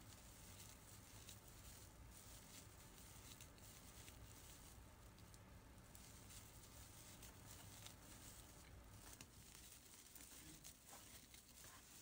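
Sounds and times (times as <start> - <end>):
faint yarn rustling: 0.0 - 12.0.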